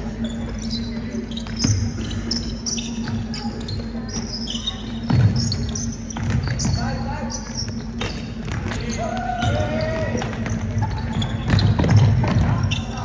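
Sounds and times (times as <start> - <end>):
sneakers squeaking: 0.0 - 13.0
basketball bouncing: 5.0 - 6.8, 9.4 - 12.8.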